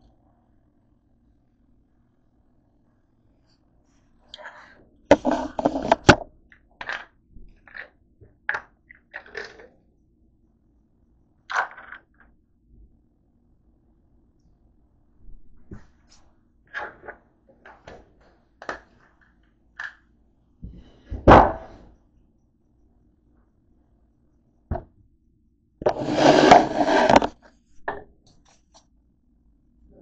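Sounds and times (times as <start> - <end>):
phone rubbing and rustling: 5.1 - 6.2, 25.8 - 27.6.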